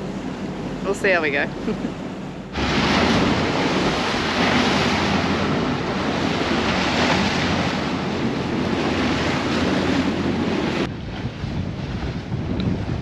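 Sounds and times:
sea splashing along hull: 0.0 - 13.0
wind buffeting microphone: 0.0 - 13.0.

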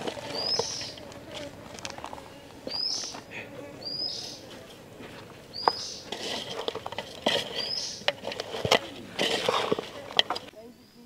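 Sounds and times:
bird calling a high note: 2.7 - 4.5.

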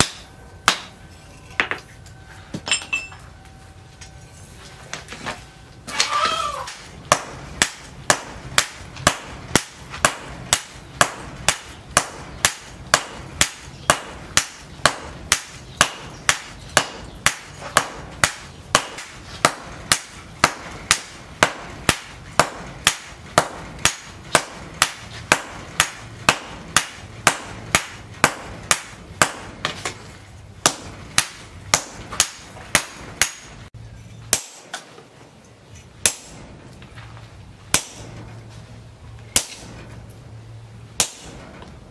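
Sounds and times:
hammer striking steel on anvil: 0.0 - 1.8, 6.6 - 30.0, 30.6 - 35.2, 36.0 - 37.0, 37.7 - 38.7, 39.3 - 40.2, 41.0 - 41.7.

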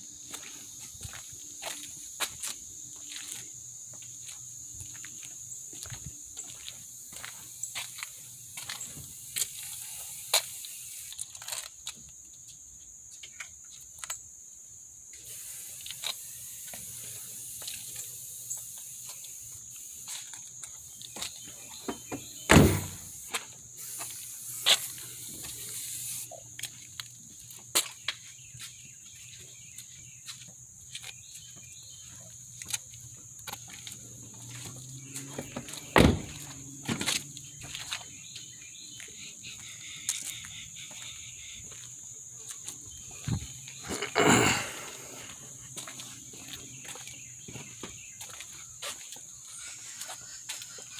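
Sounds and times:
insect chorus: 0.0 - 50.9
car doors clicking and knocking: 22.0 - 23.0, 35.5 - 37.0
loud thump: 22.5 - 23.1, 36.0 - 36.4.

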